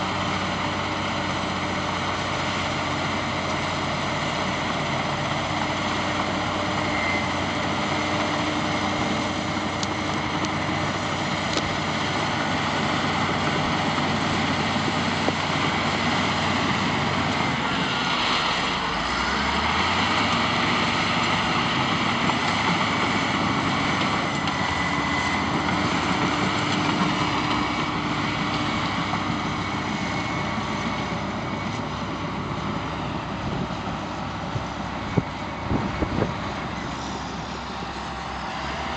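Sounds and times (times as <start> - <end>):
dozer diesel engine under load: 0.0 - 38.9.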